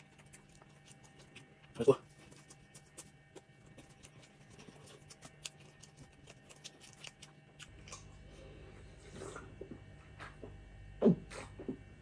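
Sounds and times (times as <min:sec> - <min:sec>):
chewing food: 0:00.0 - 0:10.5
low steady hum: 0:00.0 - 0:12.0.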